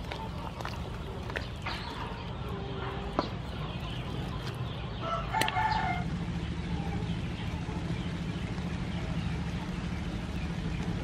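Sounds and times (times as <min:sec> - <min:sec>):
chicken clucking: 0:00.0 - 0:10.8.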